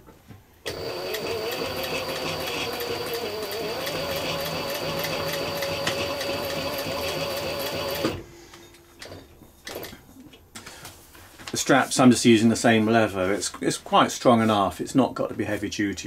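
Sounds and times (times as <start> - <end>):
sewing machine motor hum: 0.6 - 8.3.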